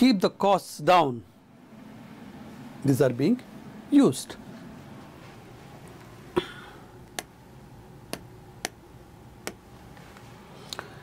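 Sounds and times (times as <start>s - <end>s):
fingertip tapping touchscreen: 7.1s - 7.3s, 8.1s - 8.8s, 9.4s - 9.6s.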